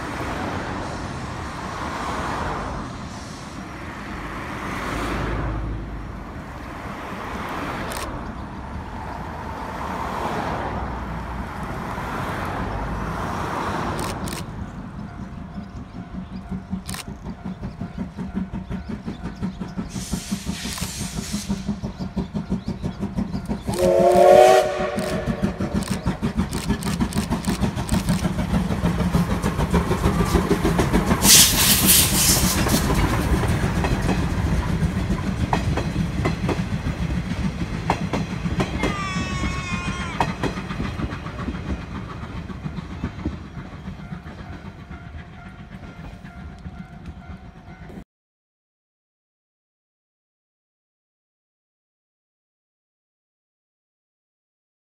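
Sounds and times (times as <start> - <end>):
loud steam hiss: 0.0 - 4.3, 19.7 - 42.5
steam locomotive chuffing: 0.0 - 48.0
train wheel clatter: 13.8 - 48.0
steam whistle: 23.7 - 25.8, 31.2 - 32.6.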